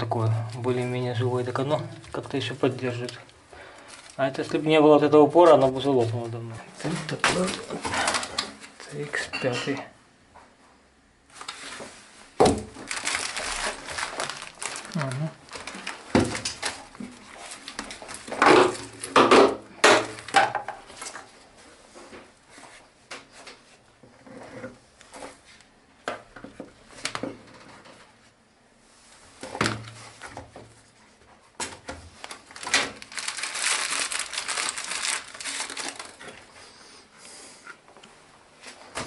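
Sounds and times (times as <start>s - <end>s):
plastic crinkling: 0.6s - 9.0s, 11.3s - 19.3s, 32.0s - 36.6s.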